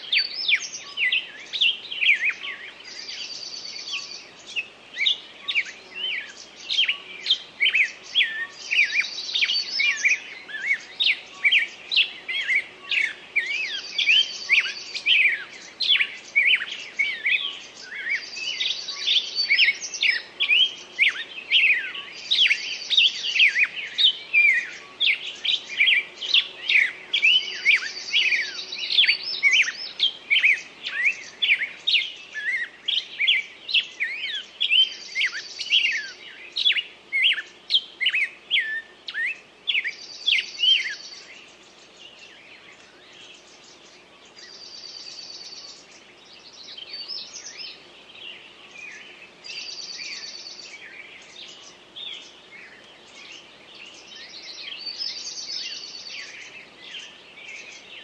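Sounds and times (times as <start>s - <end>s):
songbirds chirping: 0.0s - 58.0s.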